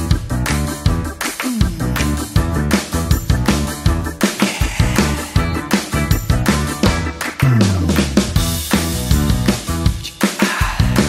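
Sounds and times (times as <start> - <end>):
instrumental music with quick beat: 0.0 - 11.0.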